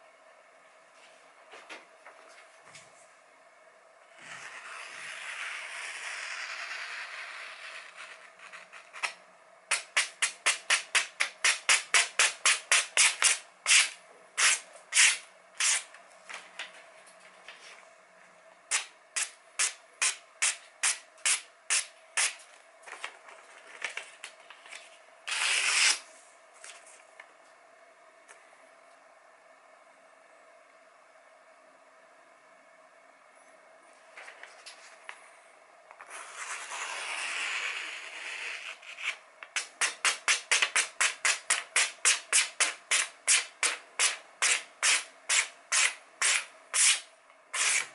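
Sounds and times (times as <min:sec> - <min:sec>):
paper rustling: 0:22.9 - 0:25.0
knife slicing paper: 0:36.1 - 0:47.9.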